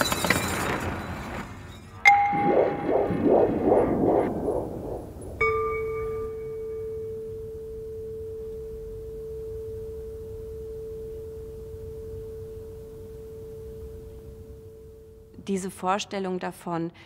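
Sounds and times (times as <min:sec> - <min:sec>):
struck ringing tone: 0:01.9 - 0:15.3
pulsing sound: 0:02.0 - 0:06.9.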